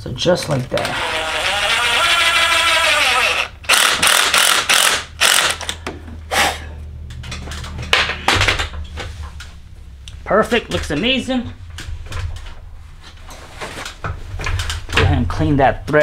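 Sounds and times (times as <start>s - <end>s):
cordless drill whining: 0.8s - 5.8s
drill bit harsh bursts: 0.9s - 5.6s.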